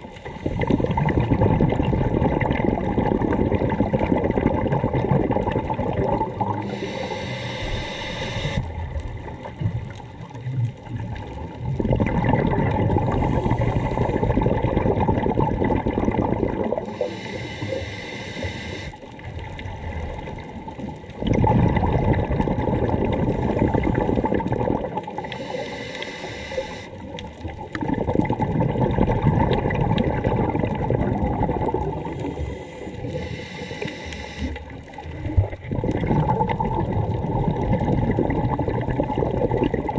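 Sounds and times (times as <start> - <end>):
bubbling exhale underwater: 0.0 - 39.9
regulator hissing inhale: 6.6 - 8.7, 13.2 - 14.2, 16.8 - 19.0, 25.2 - 27.1, 32.3 - 34.8.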